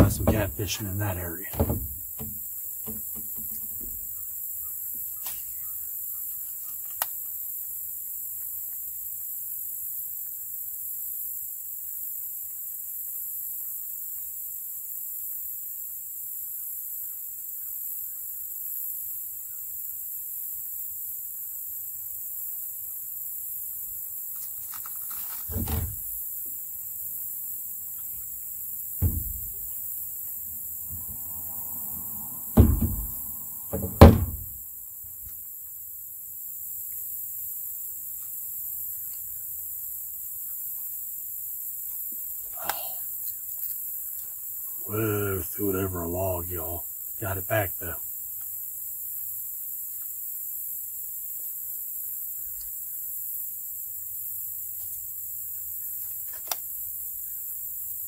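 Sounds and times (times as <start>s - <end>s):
gear knocking canoe hull: 0.0s - 3.6s
steady high hiss: 0.0s - 58.0s.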